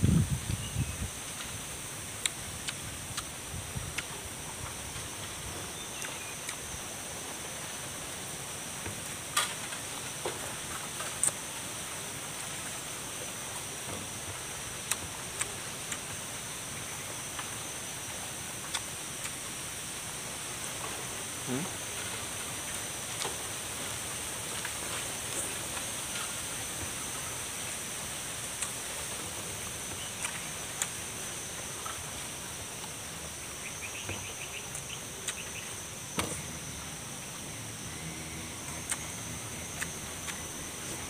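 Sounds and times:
insects droning: 0:00.0 - 0:41.0
chewing raw vegetables: 0:36.3 - 0:41.0.

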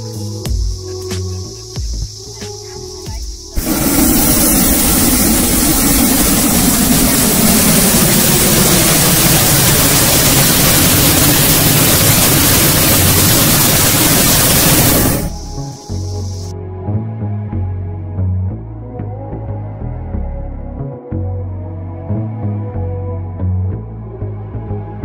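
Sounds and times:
propane burner roaring: 0:03.4 - 0:16.5.

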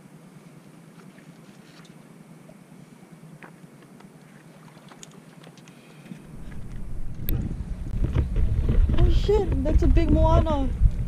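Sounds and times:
water lapping against rocks: 0:04.2 - 0:10.6
low rumble on microphone: 0:06.2 - 0:11.0.

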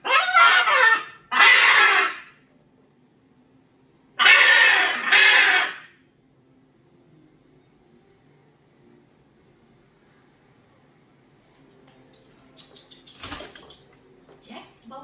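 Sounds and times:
macaw squawking loudly: 0:00.0 - 0:02.3, 0:04.2 - 0:05.9.

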